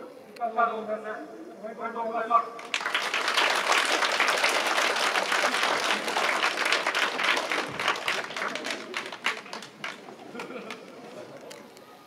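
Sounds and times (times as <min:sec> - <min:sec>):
crowd applauding: 0:02.6 - 0:11.0.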